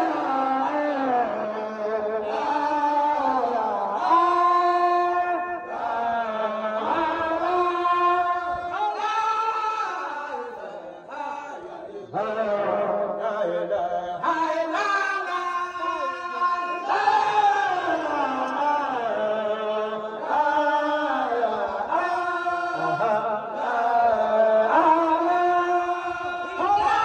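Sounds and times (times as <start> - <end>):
men chanting in unison: 0.0 - 27.0.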